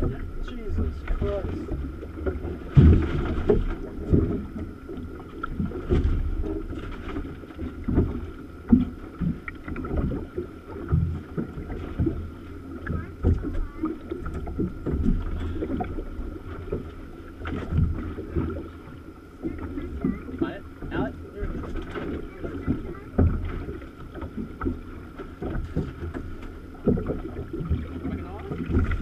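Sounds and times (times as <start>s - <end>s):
water slapping boat hull: 0.0s - 29.0s.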